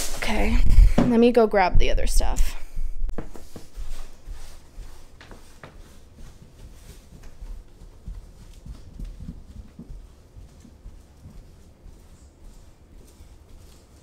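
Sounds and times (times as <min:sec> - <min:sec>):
footsteps in socks on stairs: 0:03.1 - 0:14.0.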